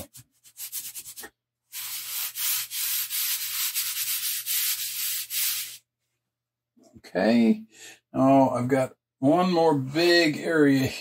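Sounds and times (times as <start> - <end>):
chalk pastel rubbing on paper: 0.0 - 5.8.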